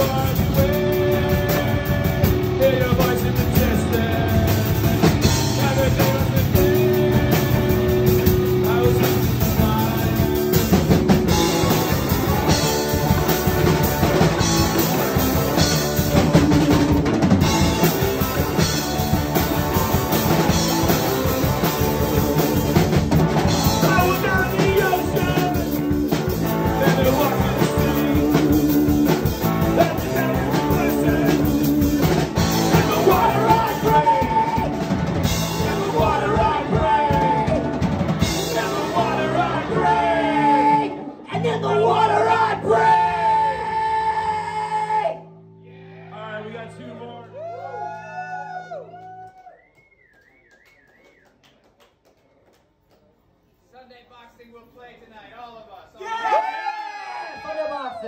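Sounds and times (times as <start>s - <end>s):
rock trio playing: 0.0s - 44.7s.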